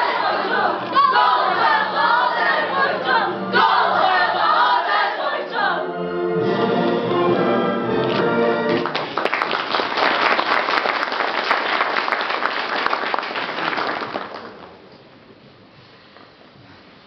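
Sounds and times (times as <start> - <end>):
group singing: 0.0 - 5.9
audience applauding: 8.7 - 14.9.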